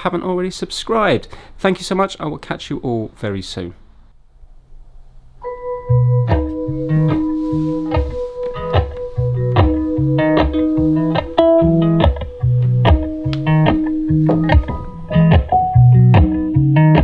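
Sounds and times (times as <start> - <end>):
acoustic guitar and bass music: 5.4 - 17.0.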